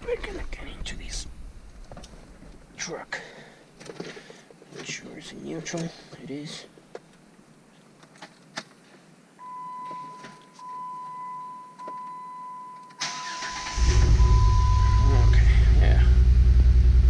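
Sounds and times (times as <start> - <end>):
dashboard chime tone: 9.4 - 12.9
car starter cranking: 13.0 - 14.4.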